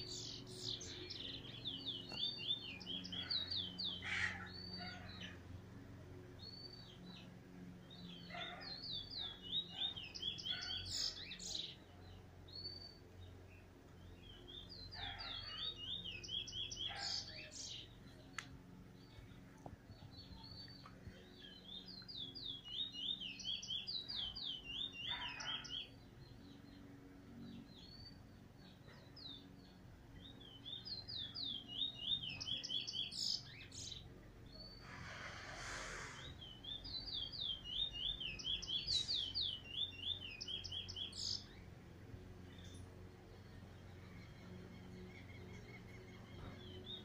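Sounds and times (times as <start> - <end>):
songbird singing whistled notes: 0.0 - 5.0, 6.4 - 19.1, 19.9 - 34.8, 35.7 - 41.8.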